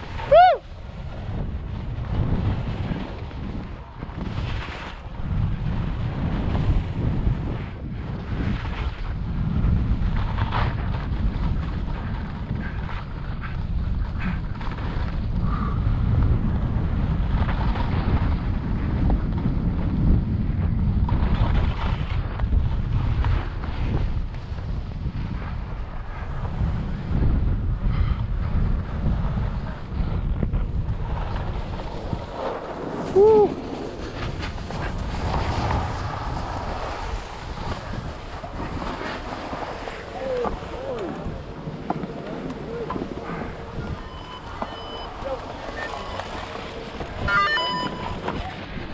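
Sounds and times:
skis scraping over snow: 0:00.0 - 0:48.9
wind buffeting microphone: 0:00.0 - 0:48.9
person calling out: 0:33.2 - 0:33.6.

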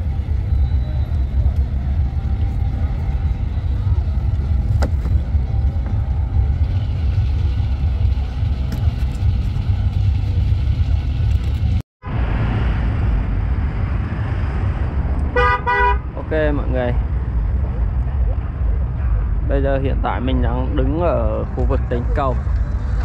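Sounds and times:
road traffic rumble: 0:00.0 - 0:23.0
vehicle horn toot: 0:15.3 - 0:16.1.

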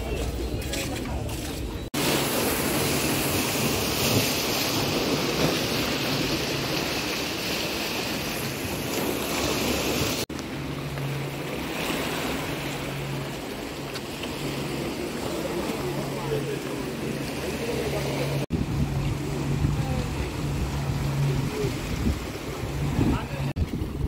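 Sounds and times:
sea surf rushing: 0:01.9 - 0:24.0
wind on microphone: 0:18.5 - 0:24.0.

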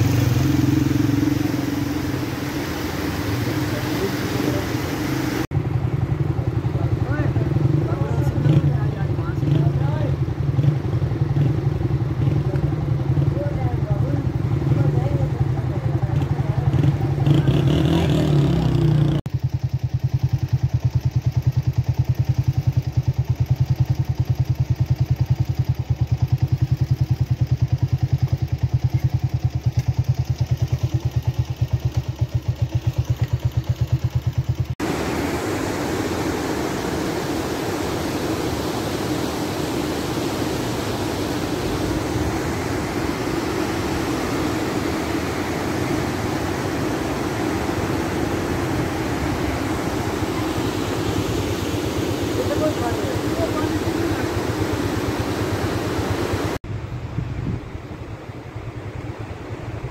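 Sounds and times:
vehicle engine running: 0:00.0 - 0:59.9
river rapids rushing: 0:34.8 - 0:56.6.

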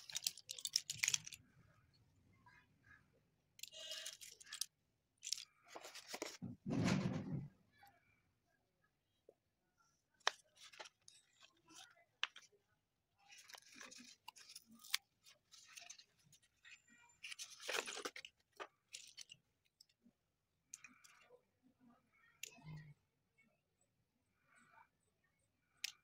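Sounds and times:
cardboard and paper rustling: 0:00.0 - 0:01.4, 0:03.6 - 0:06.6, 0:10.2 - 0:12.5, 0:13.3 - 0:19.4.

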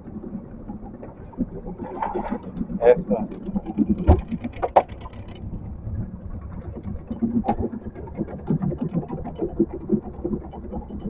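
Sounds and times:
boat motor running: 0:00.0 - 0:11.0.

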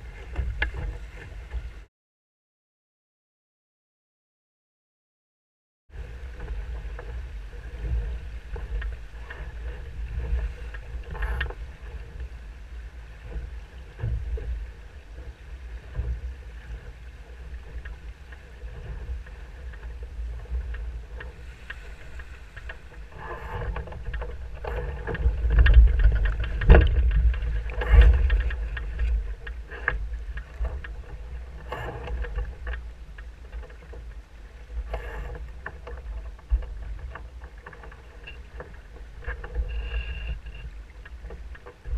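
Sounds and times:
water rushing along hull: 0:00.0 - 0:01.9, 0:05.9 - 0:41.9
wind buffeting microphone: 0:05.9 - 0:41.9
knocks and splashes: 0:13.2 - 0:39.7.

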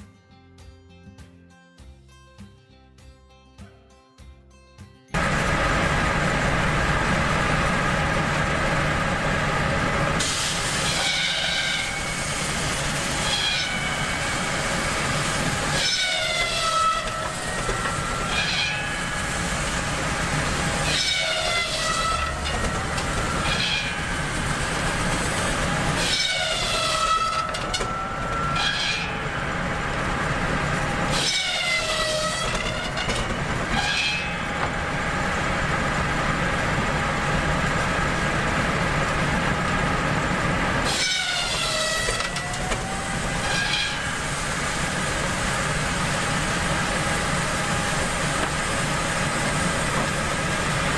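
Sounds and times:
machinery hum: 0:05.2 - 0:50.9
circular saw blade cutting wood: 0:10.2 - 0:35.3, 0:40.8 - 0:50.9.

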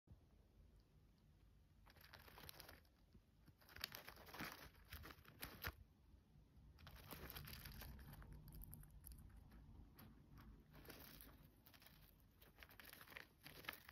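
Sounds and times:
hamster gnawing peanut shell: 0:01.6 - 0:05.8, 0:06.7 - 0:13.9
hamster crinkling paper bedding: 0:01.8 - 0:05.8, 0:06.8 - 0:13.9.

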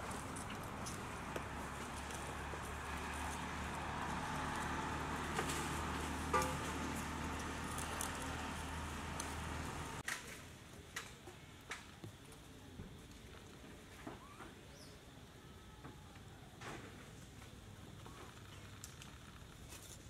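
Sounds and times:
motor humming: 0:00.0 - 0:10.0
faint squeaky calls: 0:14.1 - 0:15.0.

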